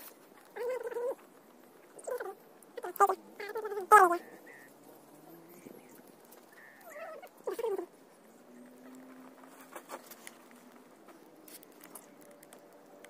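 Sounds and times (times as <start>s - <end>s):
wavering animal call: 0.5s - 8.0s.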